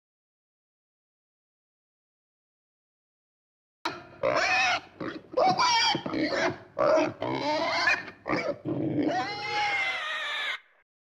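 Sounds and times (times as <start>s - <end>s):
pig squealing and grunting: 3.9s - 10.8s.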